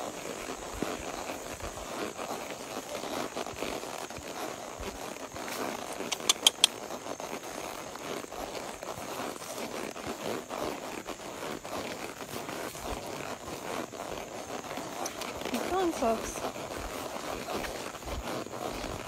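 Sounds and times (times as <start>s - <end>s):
rustling and crackling: 0.0s - 19.0s
sharp clicks: 6.0s - 6.8s.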